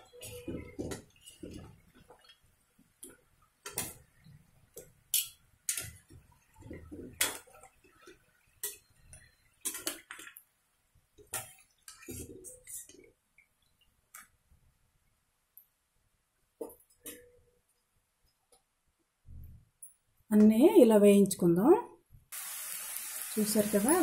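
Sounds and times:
oil bubbling: 0.1 - 14.5.

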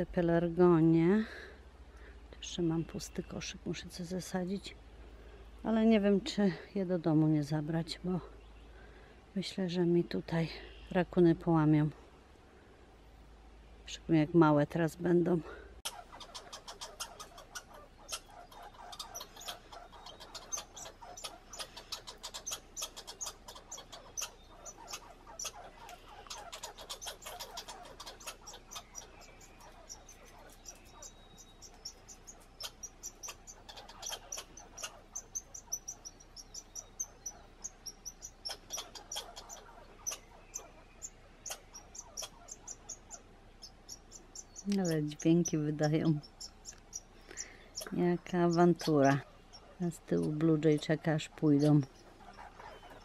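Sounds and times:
squirrels chattering: 14.2 - 53.0
squirrel churring: 14.8 - 53.0.

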